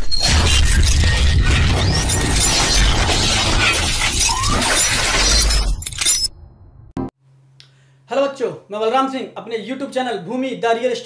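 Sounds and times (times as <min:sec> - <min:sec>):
crashing noise over deep rumble: 0:00.2 - 0:04.2.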